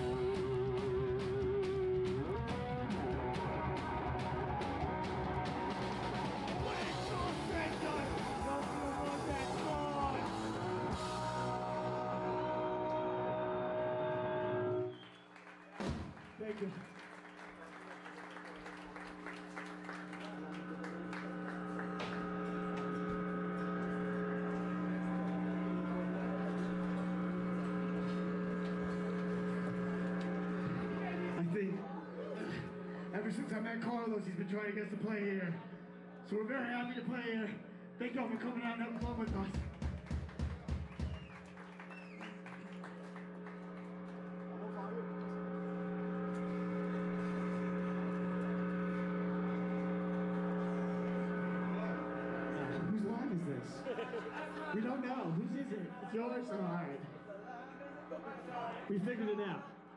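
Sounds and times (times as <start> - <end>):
amplifier electric hum: 0.0 - 15.4, 17.9 - 59.9.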